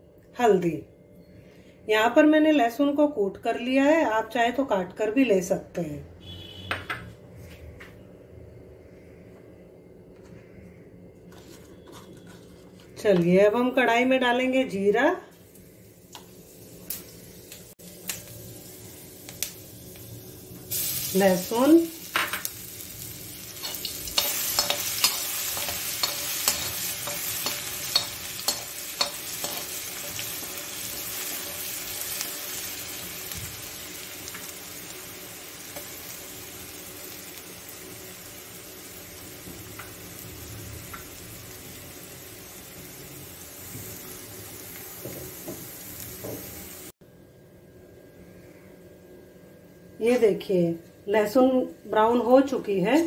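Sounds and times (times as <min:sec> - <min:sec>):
metal ladle scraping a pan: 0:11.3 - 0:13.0
garlic sizzling in hot oil: 0:12.4 - 0:47.0.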